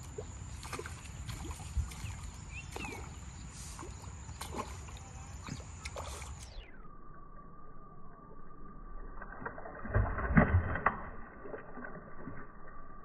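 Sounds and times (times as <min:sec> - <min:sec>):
water trickling and splashing: 0:00.0 - 0:06.6, 0:09.1 - 0:13.0.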